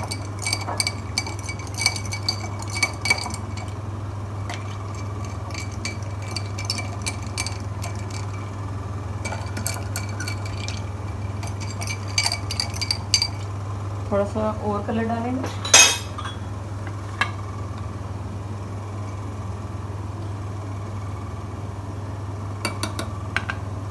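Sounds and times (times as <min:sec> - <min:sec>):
fork clinking glass and ice: 0:00.0 - 0:03.8, 0:04.5 - 0:08.4, 0:09.2 - 0:13.5, 0:15.6 - 0:16.4
low steady hum: 0:00.0 - 0:23.9.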